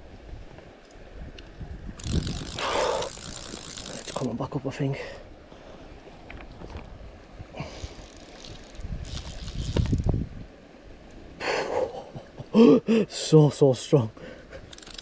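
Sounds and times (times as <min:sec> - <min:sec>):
wind buffeting microphone: 0:00.0 - 0:04.3, 0:06.3 - 0:10.5
fishing reel ratchet clicking: 0:02.0 - 0:04.3, 0:07.8 - 0:10.1, 0:14.7 - 0:15.0.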